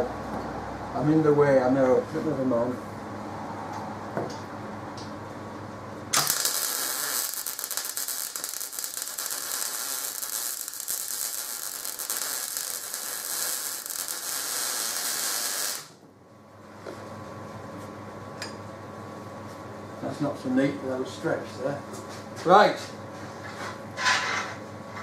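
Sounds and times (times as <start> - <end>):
electric arc welding crackle: 6.1 - 16.0.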